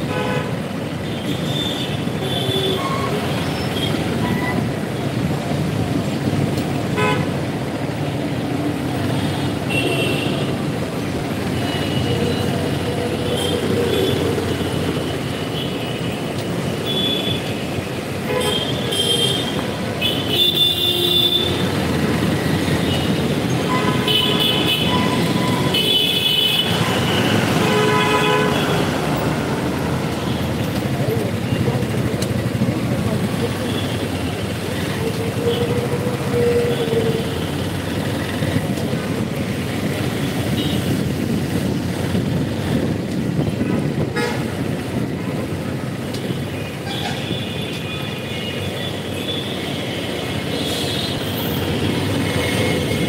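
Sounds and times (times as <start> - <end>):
traffic engines rumbling: 0.0 - 53.0
vehicle horns tooting: 6.9 - 7.4, 18.2 - 29.5, 43.6 - 44.9, 46.2 - 53.0.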